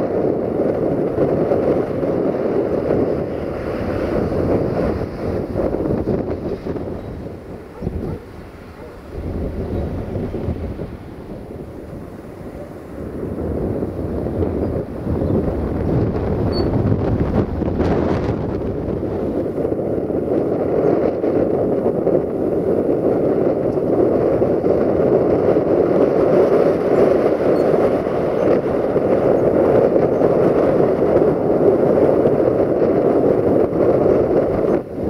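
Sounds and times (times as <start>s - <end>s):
diesel locomotive engine rumble: 0.8s - 20.8s.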